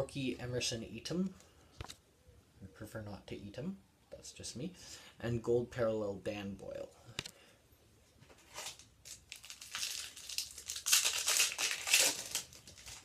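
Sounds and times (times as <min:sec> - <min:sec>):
plastic wrapper crinkling and tearing: 0:08.4 - 0:13.0.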